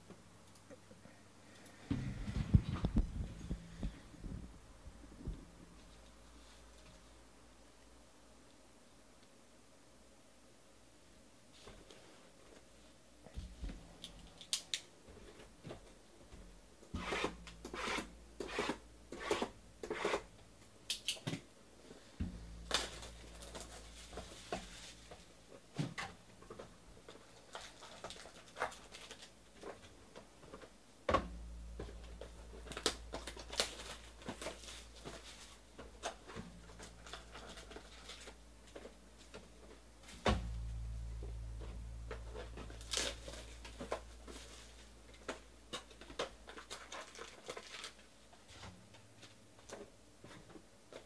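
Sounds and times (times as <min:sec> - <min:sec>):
cardboard box scraping and rubbing: 0:17.0 - 0:20.2.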